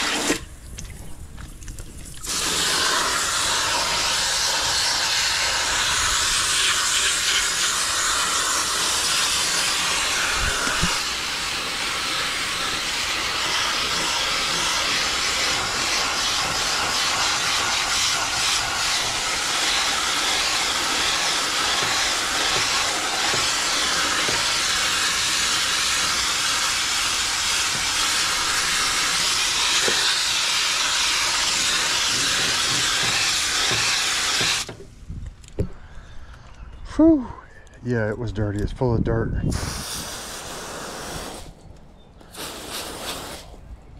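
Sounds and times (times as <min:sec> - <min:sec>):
hose nozzle spraying water: 0:00.0 - 0:34.8, 0:39.5 - 0:41.6, 0:42.2 - 0:43.6.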